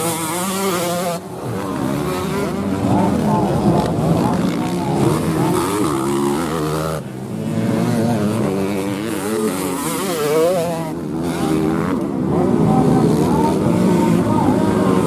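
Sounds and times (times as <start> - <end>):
dirt bike engines revving: 0.0 - 15.0.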